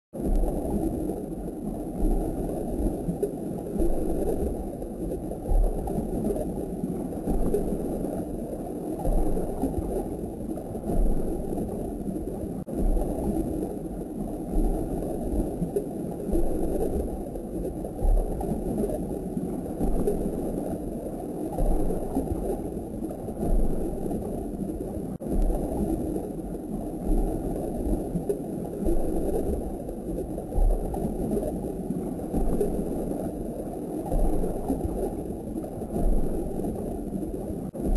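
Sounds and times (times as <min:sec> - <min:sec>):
aquarium water gurgling: 0:00.2 - 0:37.9
soft low thumps: 0:02.0 - 0:02.4, 0:03.8 - 0:04.6, 0:05.4 - 0:06.5, 0:07.2 - 0:07.9, 0:09.0 - 0:13.6, 0:14.2 - 0:15.7, 0:16.3 - 0:17.2, 0:18.0 - 0:18.9, 0:19.7 - 0:20.4, 0:21.6 - 0:22.6, 0:23.3 - 0:24.3, 0:25.2 - 0:26.2, 0:27.0 - 0:28.2, 0:28.8 - 0:33.0, 0:34.1 - 0:35.1, 0:35.8 - 0:36.7, 0:37.7 - 0:37.9.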